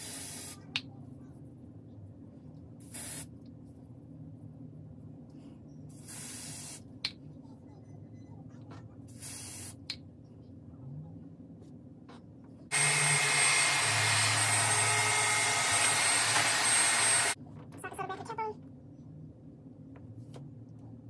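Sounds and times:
aerosol spray hissing: 0.0s - 0.6s, 2.8s - 3.3s, 5.9s - 6.9s, 9.2s - 9.8s
hair dryer running: 12.7s - 17.4s.

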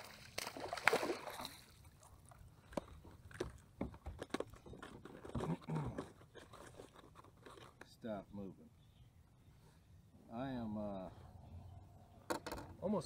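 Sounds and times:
fish splashing at water surface: 0.0s - 1.7s
knocks and clicks of fishing tackle: 12.3s - 12.8s.

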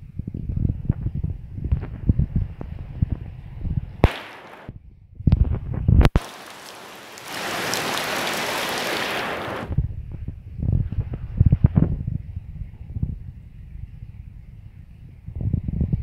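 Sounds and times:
heavy rain on a flooded street: 6.2s - 9.7s.

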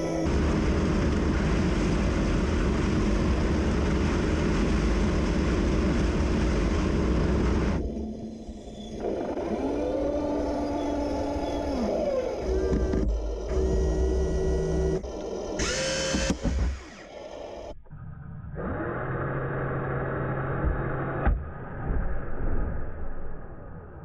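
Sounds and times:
electric motor whine: 0.0s - 17.8s
toy tank motor drone: 8.5s - 17.8s.

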